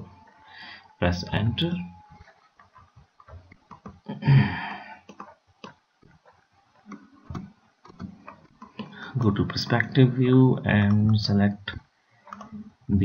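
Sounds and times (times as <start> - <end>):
computer mouse clicks: 5.0 - 9.4, 12.2 - 12.7.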